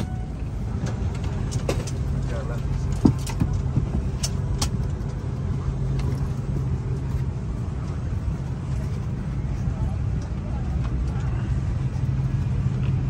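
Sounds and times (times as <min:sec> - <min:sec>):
aircraft cabin air hum: 0:00.0 - 0:13.0.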